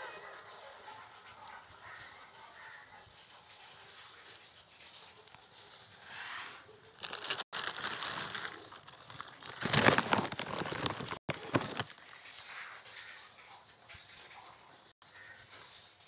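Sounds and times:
plastic sheet crinkling: 0:05.3 - 0:13.1.

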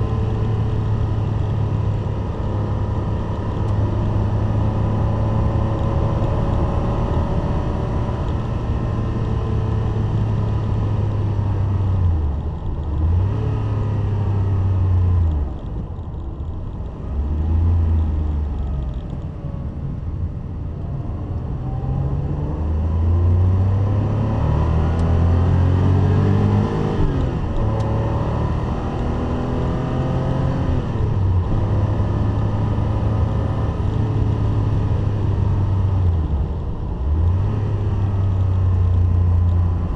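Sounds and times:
car engine at high revs: 0:00.0 - 0:39.9.

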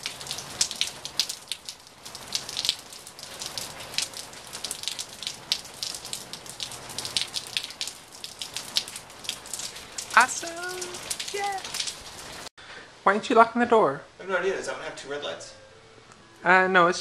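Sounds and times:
rain hissing: 0:00.0 - 0:12.5
raindrops tapping: 0:00.0 - 0:12.5.

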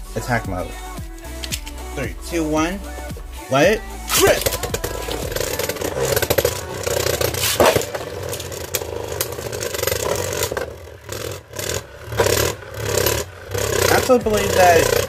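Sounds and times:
spinning tops clicking together: 0:01.2 - 0:01.9, 0:04.1 - 0:10.6
spinning tops scraping plastic: 0:01.2 - 0:02.0, 0:02.9 - 0:15.0.

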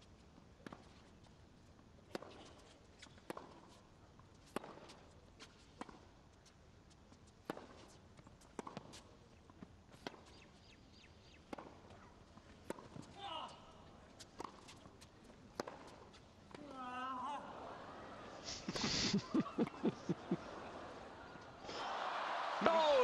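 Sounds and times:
tennis ball struck and bouncing: 0:11.5 - 0:12.0, 0:12.6 - 0:13.1, 0:15.5 - 0:16.6.

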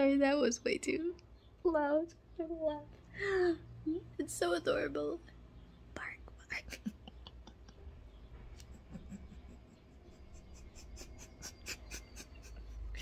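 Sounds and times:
woman's stifled laughter: 0:06.8 - 0:13.0.

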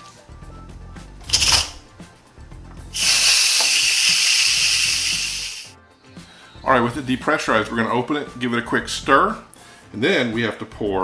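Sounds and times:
steam hissing from pressure valve: 0:02.9 - 0:05.8.

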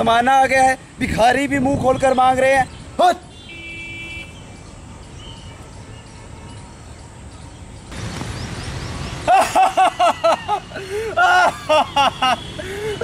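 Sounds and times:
distant traffic rumble: 0:00.0 - 0:13.0.

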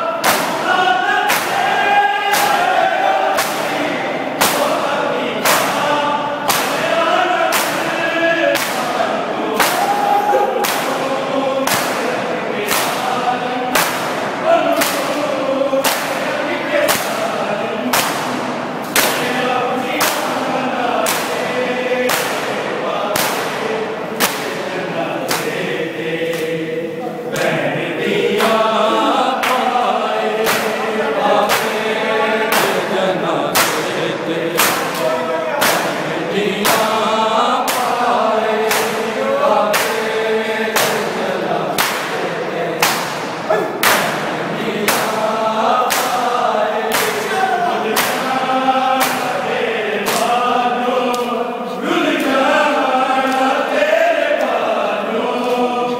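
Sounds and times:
crowd of men chanting a lament: 0:00.0 - 0:55.9
hands slapping chests: 0:01.3 - 0:01.6, 0:02.3 - 0:04.8, 0:06.5 - 0:06.9, 0:07.5 - 0:07.9, 0:08.5 - 0:09.0, 0:09.6 - 0:11.0, 0:11.6 - 0:13.0, 0:13.7 - 0:15.2, 0:15.8 - 0:16.2, 0:16.8 - 0:17.2, 0:17.9 - 0:19.3, 0:19.9 - 0:20.4, 0:21.0 - 0:21.4, 0:22.1 - 0:22.6, 0:23.2 - 0:25.6, 0:26.2 - 0:26.6, 0:28.3 - 0:31.8, 0:32.5 - 0:32.9, 0:33.5 - 0:37.0, 0:37.6 - 0:38.0, 0:38.6 - 0:39.1, 0:39.7 - 0:40.1, 0:40.8 - 0:41.1, 0:41.7 - 0:44.2, 0:44.9 - 0:45.2, 0:45.8 - 0:46.3, 0:46.9 - 0:48.4, 0:49.0 - 0:49.4, 0:50.0 - 0:50.4, 0:51.0 - 0:51.4.

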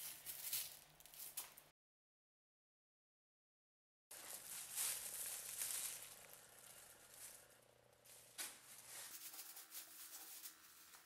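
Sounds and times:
plastic bag rustling: 0:00.0 - 0:01.6, 0:04.1 - 0:11.0.

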